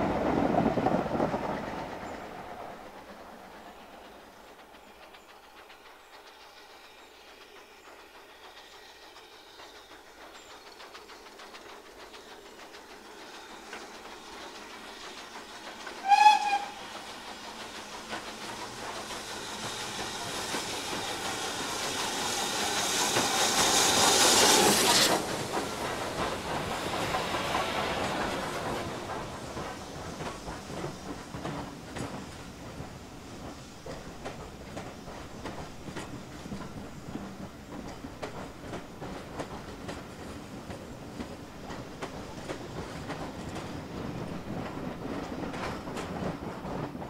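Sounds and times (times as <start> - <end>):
steam train exhaust: 0.0 - 47.0
wheels on rails: 0.0 - 47.0
steam locomotive whistle: 16.0 - 17.0.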